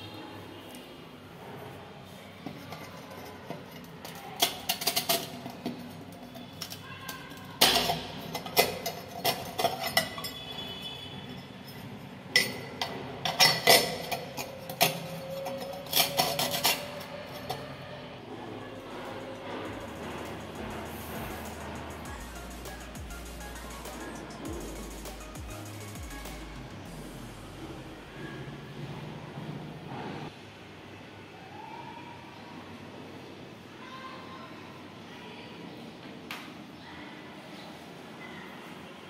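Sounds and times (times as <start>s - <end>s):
metal grate clinking and rattling: 2.6s - 10.7s, 11.7s - 17.8s.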